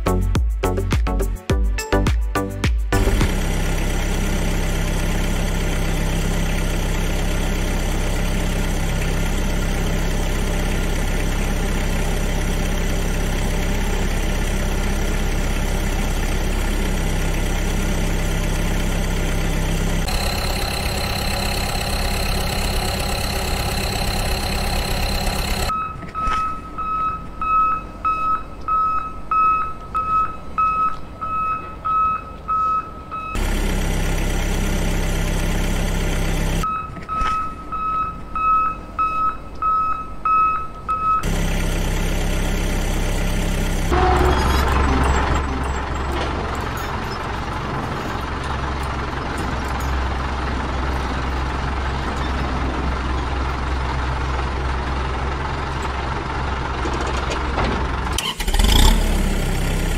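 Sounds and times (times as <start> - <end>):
truck engine idling: 2.9 - 25.7, 33.4 - 36.6, 41.2 - 59.9
high whine: 20.0 - 25.7
reversing alarm beeping: 20.0 - 33.4, 36.6 - 41.3.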